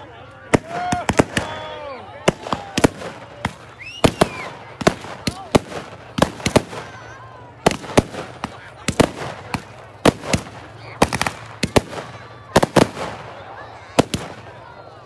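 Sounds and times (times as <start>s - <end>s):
fireworks bangs and pops: 0.5s - 14.7s.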